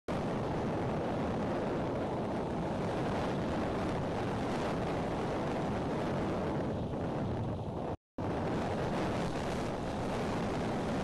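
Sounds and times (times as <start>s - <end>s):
wind blowing on microphone: 0.1s - 11.0s.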